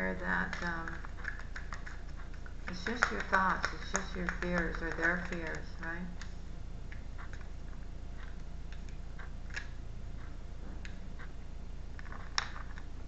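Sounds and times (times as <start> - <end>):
steady low hum: 0.0 - 13.0
cards being shuffled: 0.5 - 5.7.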